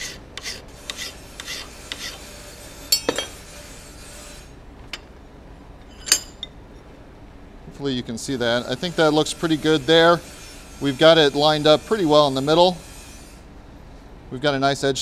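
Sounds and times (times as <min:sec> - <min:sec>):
file rasping on steel: 0:00.0 - 0:04.6, 0:08.3 - 0:13.5
sharp metallic clink: 0:02.9 - 0:03.4, 0:05.9 - 0:06.5.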